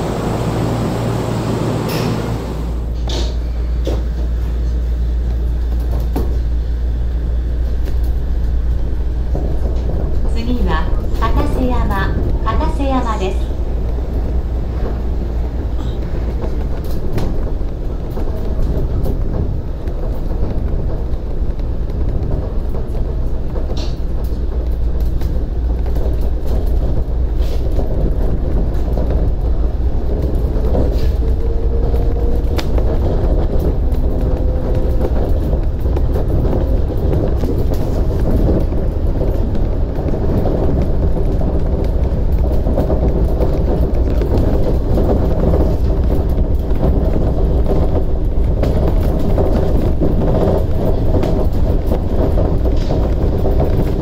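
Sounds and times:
faint train whine: 0.0 - 42.4
monorail train rumble: 0.0 - 54.0.

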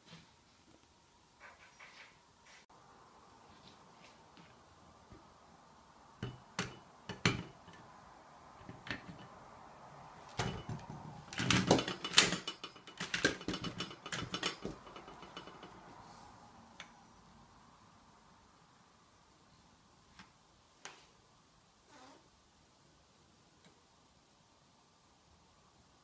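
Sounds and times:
bowl knocks and clatter: 10.4 - 15.9.

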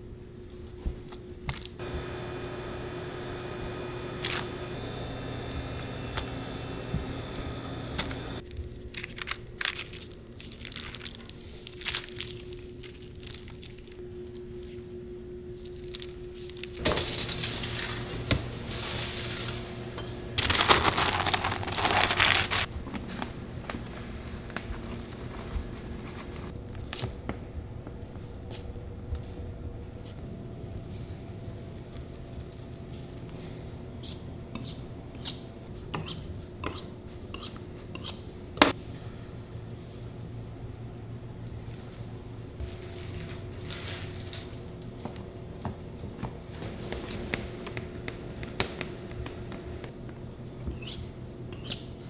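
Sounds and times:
steady low hum: 0.0 - 8.5, 12.4 - 52.0
paper rustling and crinkling: 8.4 - 19.8, 20.4 - 33.7, 41.8 - 45.5.

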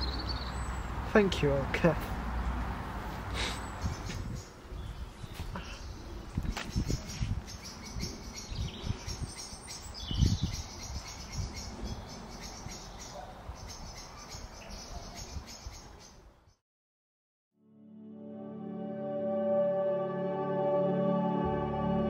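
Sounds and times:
wind buffeting microphone: 3.7 - 16.0.

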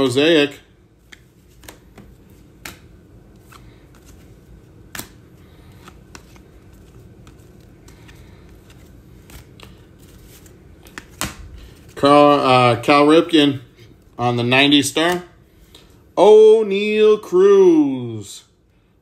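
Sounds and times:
cards clicking and snapping: 1.0 - 11.4.

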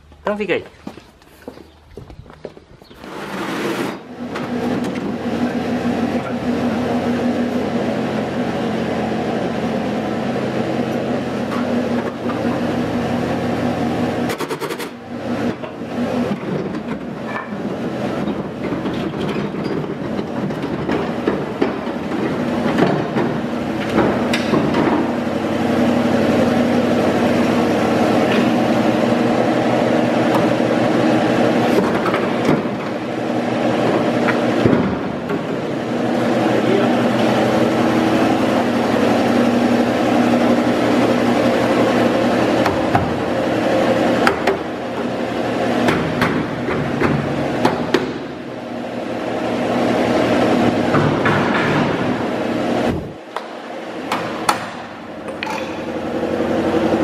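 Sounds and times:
loud mechanical drone: 3.1 - 57.0
metallic clanks and knocks: 18.2 - 25.1, 50.9 - 52.1, 54.1 - 56.1.

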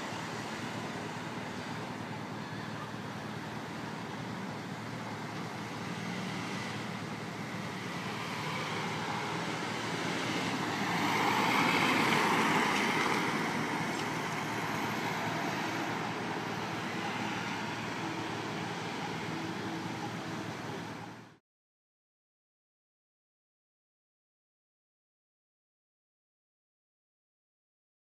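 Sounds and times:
street traffic: 0.0 - 21.4
vehicle engine and tyres passing: 2.8 - 21.3.

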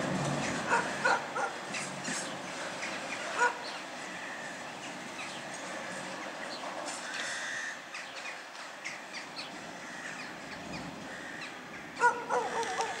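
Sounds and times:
birds chirping: 0.3 - 13.0
harsh cawing calls: 4.0 - 4.6, 7.0 - 8.0, 9.8 - 10.3, 11.1 - 13.0.

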